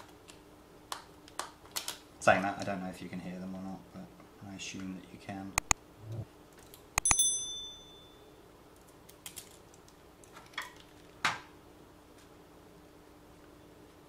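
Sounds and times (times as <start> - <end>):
metal tool clinking on hard surface: 7.0 - 8.2.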